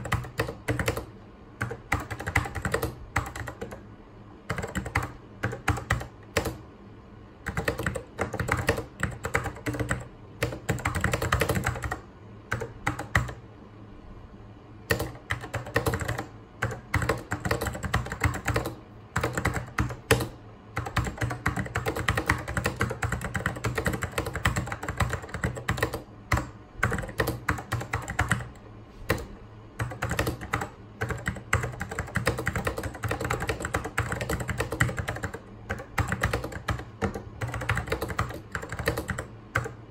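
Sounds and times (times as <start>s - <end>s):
mechanical keyboard typing: 0.0s - 3.8s, 4.5s - 6.6s, 7.4s - 13.4s, 14.8s - 39.8s
steady low hum: 0.0s - 39.9s.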